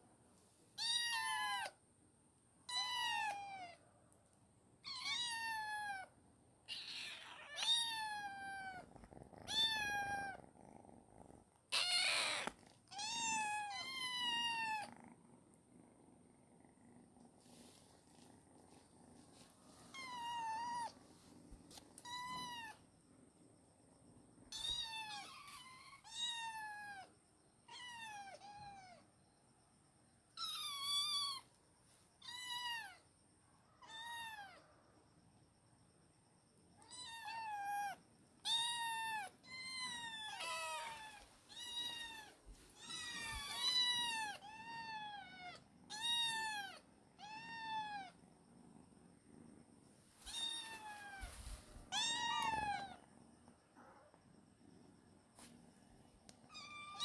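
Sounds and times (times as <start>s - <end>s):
kitten meowing: 4.8s - 6.1s, 6.7s - 8.8s, 9.4s - 10.4s, 11.7s - 14.9s, 51.9s - 53.0s.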